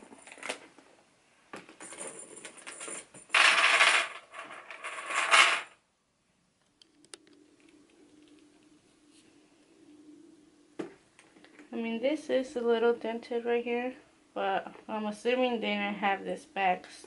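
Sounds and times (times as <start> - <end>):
metal chain strap jingling: 1.8 - 3.8
faint hum: 5.8 - 17.0.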